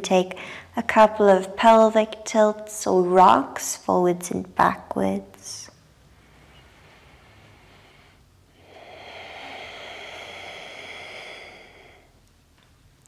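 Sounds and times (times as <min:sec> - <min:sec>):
woman breathing out: 0:06.8 - 0:12.2.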